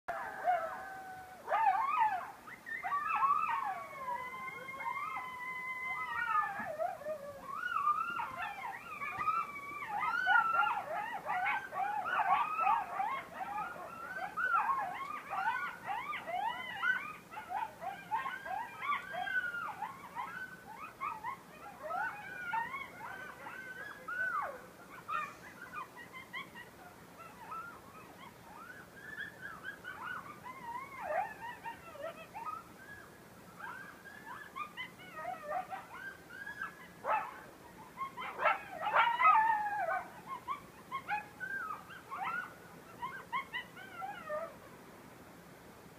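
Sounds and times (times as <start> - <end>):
coyotes howling: 0.1 - 44.8.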